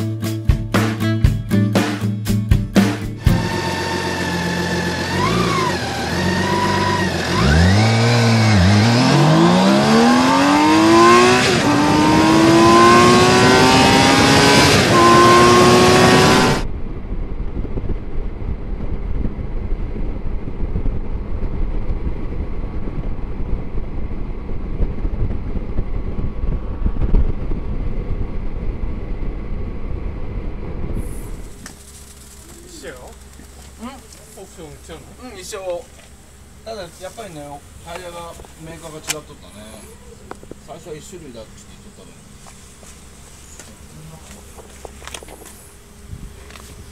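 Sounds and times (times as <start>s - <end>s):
motorcycle engine revving: 2.8s - 35.2s
gear upshifts: 3.2s - 16.7s, 30.9s - 46.9s
wind rush on microphone: 10.8s - 31.6s, 46.0s - 46.9s.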